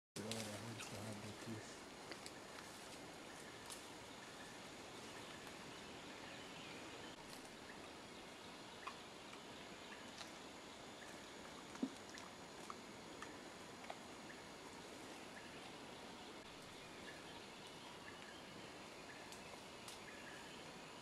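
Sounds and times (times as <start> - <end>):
faint hiss: 0.2 - 21.0
small clicks and snaps: 19.3 - 20.1.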